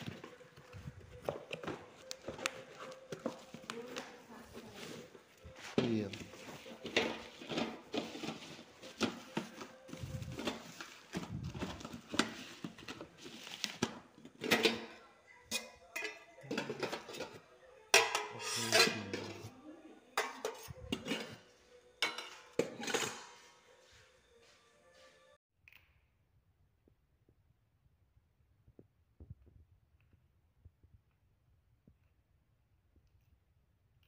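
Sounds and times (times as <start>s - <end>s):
metal pots and lids clanking: 6.5s - 9.6s, 13.8s - 19.5s, 20.2s - 23.6s.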